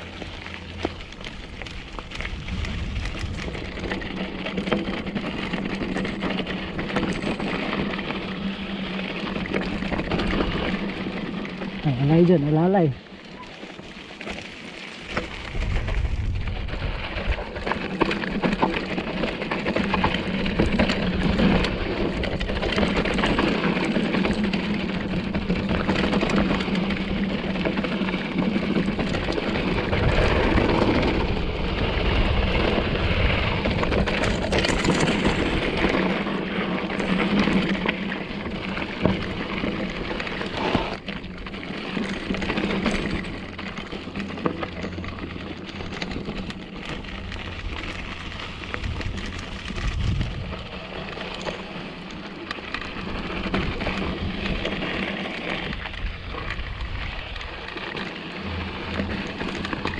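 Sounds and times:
bike tyres crunching over gravel: 0.0 - 59.9
bike knocks and clatters: 13.4 - 59.9.

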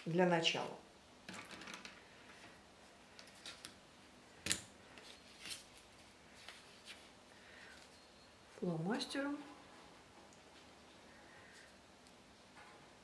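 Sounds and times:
paper rustling: 4.9 - 7.1.

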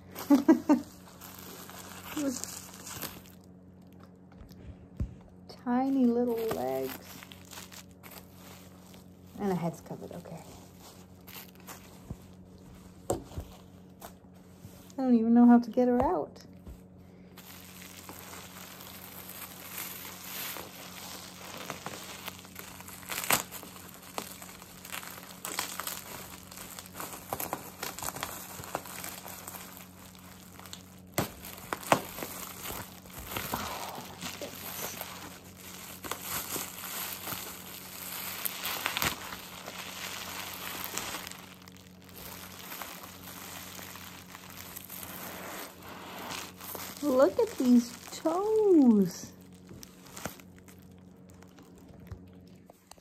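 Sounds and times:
bubble wrap crackling: 0.0 - 53.0.

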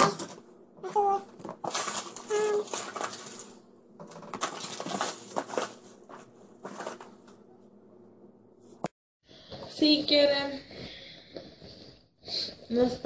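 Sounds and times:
small hard objects clattering: 1.4 - 5.9.

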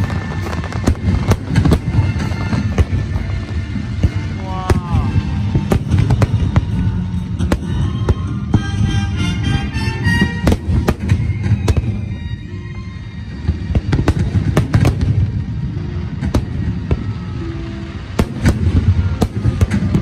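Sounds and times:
firework shells bursting: 0.0 - 12.4
continuous low rumble: 0.0 - 20.0.

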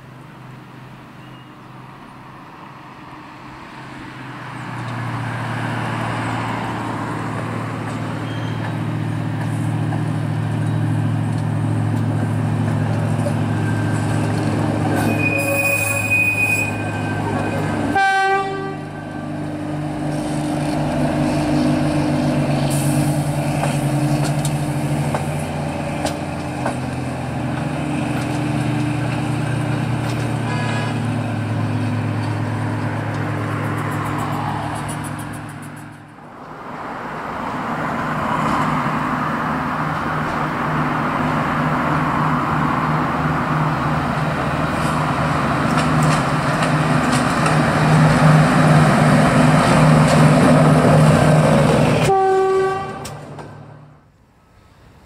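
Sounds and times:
railcar diesel engine passing: 0.0 - 55.0
train horn blast: 15.0 - 19.2, 52.0 - 53.4.

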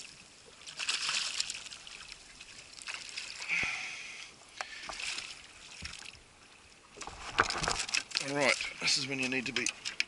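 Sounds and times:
water splashing and sloshing: 0.0 - 10.0.

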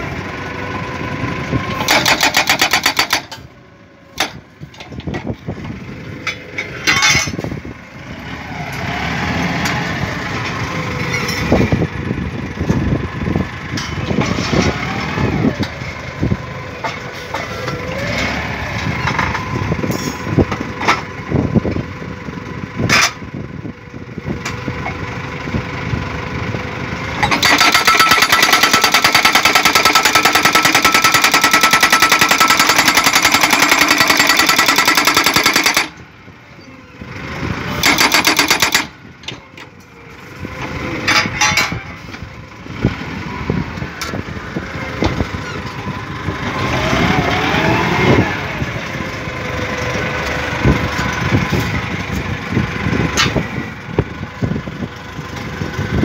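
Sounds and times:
hydraulic hammer pounding: 1.8 - 3.5, 27.2 - 36.0, 37.8 - 39.7
metal clanks: 1.8 - 3.5, 6.2 - 7.6, 27.2 - 36.0, 37.8 - 40.0, 40.6 - 42.2
pile driver whine: 27.2 - 42.2.

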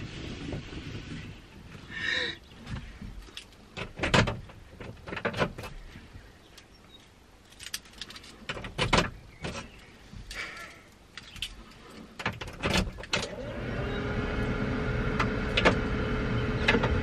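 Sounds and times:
sharp clicks and rustles: 2.6 - 13.4
keys jangling: 7.4 - 8.5.

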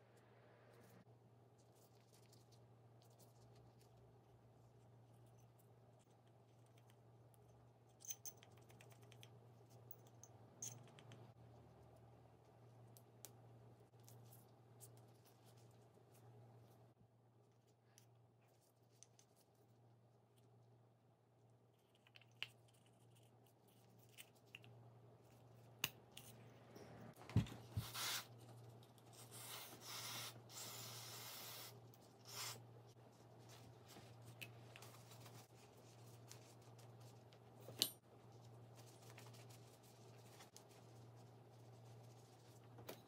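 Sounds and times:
rubbing and rustling: 32.8 - 42.9.

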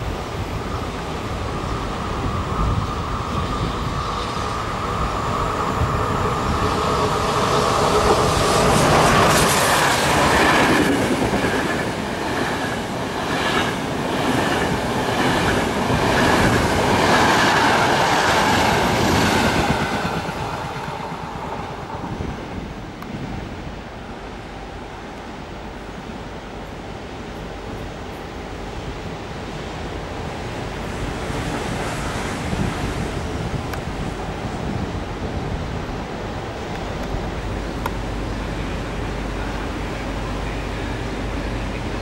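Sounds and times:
train rushing past: 0.0 - 42.0
clickety-clack of train wheels: 6.3 - 22.3.

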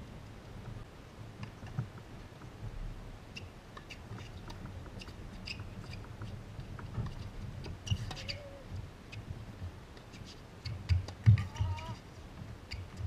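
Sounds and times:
shoes squeaking on court: 7.8 - 9.2.

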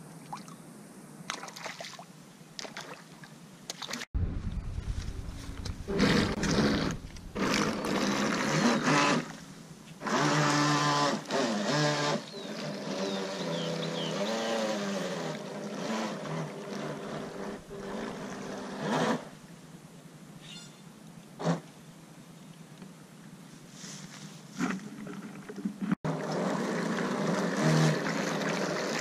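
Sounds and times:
model boat motor running: 10.0 - 19.2, 26.1 - 28.7.

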